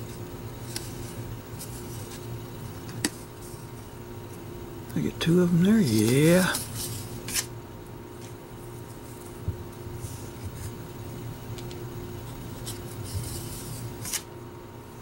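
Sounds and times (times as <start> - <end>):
steady low hum: 0.0 - 15.0
trading cards rustling: 5.3 - 7.5, 11.6 - 14.3.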